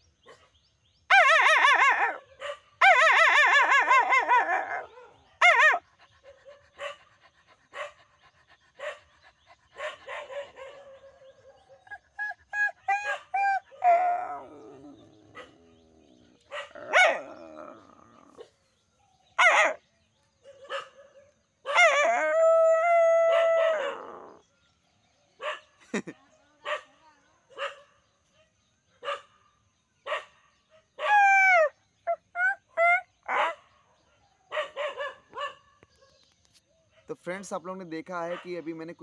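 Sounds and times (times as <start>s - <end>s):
dog howling: 1.1s - 18.6s, 19.4s - 19.8s, 20.7s - 24.5s, 31.0s - 33.6s
dog barking and yelping: 1.1s - 18.7s, 19.3s - 19.8s, 20.4s - 24.5s, 25.4s - 25.9s, 26.6s - 28.0s, 29.0s - 29.4s, 30.0s - 36.3s, 38.2s - 38.7s.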